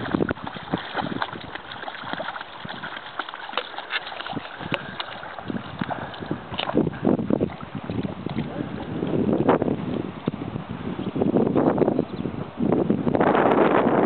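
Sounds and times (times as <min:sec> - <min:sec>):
paws splashing in shallow water: 0:00.0 - 0:11.2.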